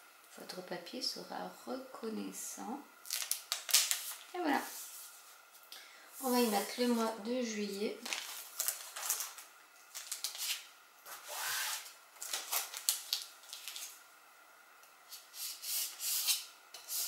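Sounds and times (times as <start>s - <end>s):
plastic tape crinkly rustles: 3.0s - 5.6s, 7.7s - 14.0s.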